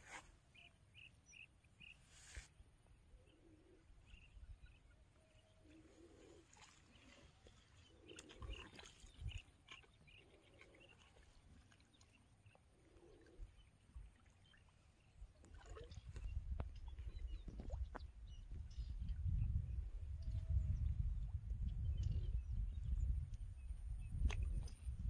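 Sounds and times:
faint bird calls: 0.0s - 14.7s.

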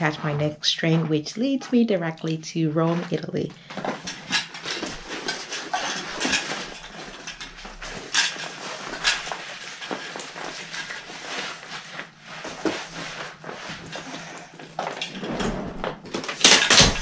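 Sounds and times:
fabric and bag straps rustling: 2.8s - 17.0s
buckles clicking and knocking: 3.7s - 11.0s.

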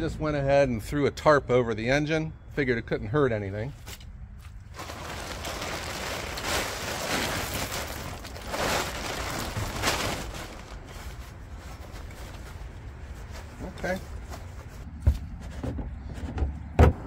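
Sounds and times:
plastic tarp crinkling and rustling: 4.7s - 14.8s.

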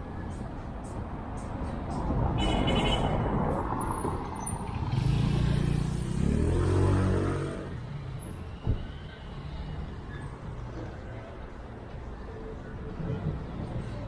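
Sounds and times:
vehicle passing and accelerating: 3.2s - 8.2s.

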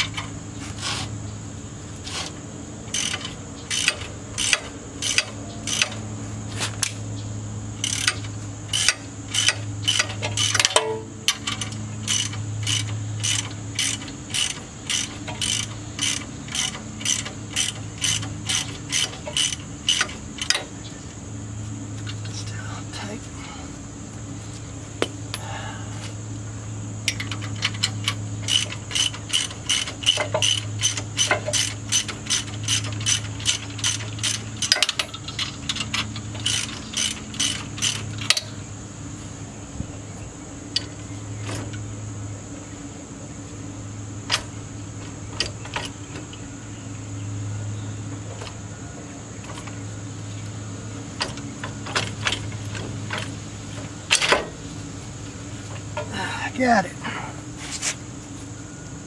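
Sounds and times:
steady low hum: 0.0s - 59.0s
socket ratchet clicking: 2.9s - 6.0s, 7.8s - 20.6s, 27.1s - 38.5s.

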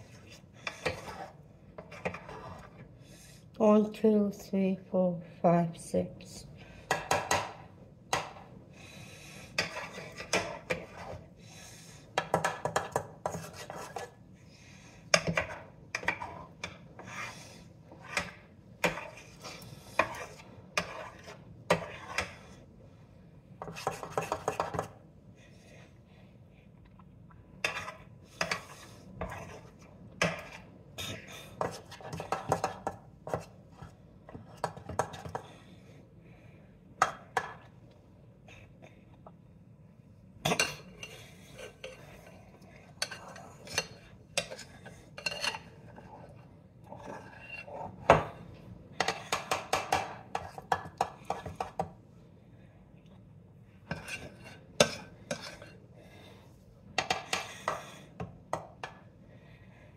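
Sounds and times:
utensil scraping and knocking bowl: 0.0s - 2.9s, 9.4s - 11.3s, 12.1s - 14.2s, 15.1s - 22.6s, 23.6s - 25.0s, 27.6s - 35.6s, 40.5s - 48.4s, 49.0s - 52.0s, 53.8s - 55.8s, 57.0s - 59.1s.

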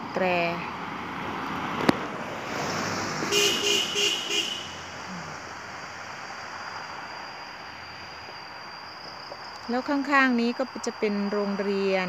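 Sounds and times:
pickup truck driving past: 0.6s - 9.0s
vehicle horn toots: 3.2s - 4.9s.

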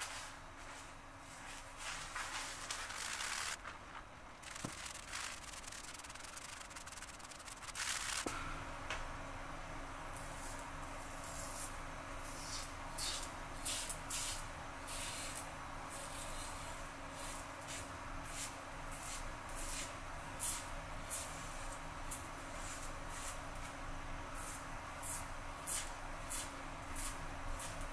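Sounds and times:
razor scraping stubble: 2.7s - 3.6s.

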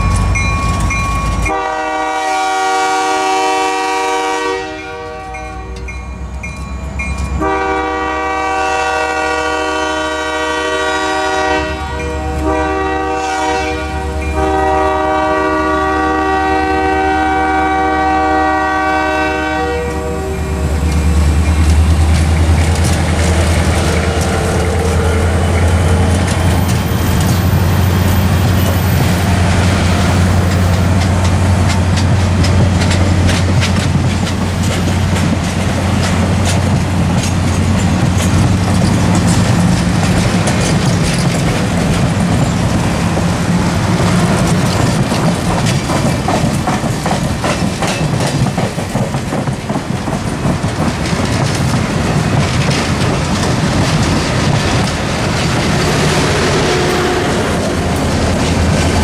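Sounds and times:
train coaches rumbling: 0.0s - 59.0s
wheels clicking over rail joints: 20.6s - 56.6s, 57.6s - 59.0s.

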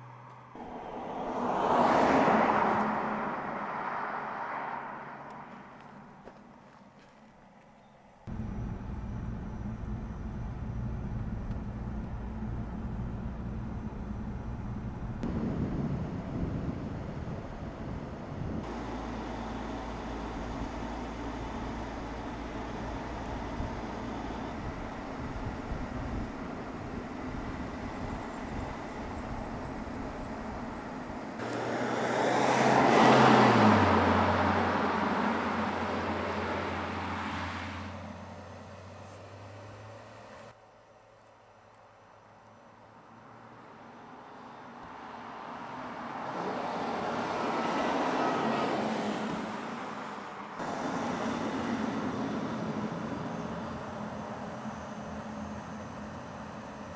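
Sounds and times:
car driving past at speed: 0.0s - 6.2s, 31.4s - 40.3s
car engine hum: 0.0s - 41.0s
road noise: 0.0s - 56.9s
low steady rumble: 8.3s - 31.5s.

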